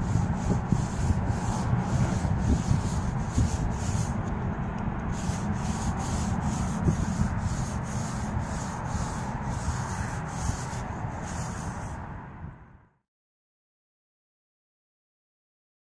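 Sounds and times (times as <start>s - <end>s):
paint roller rubbing on wall: 0.0s - 12.0s.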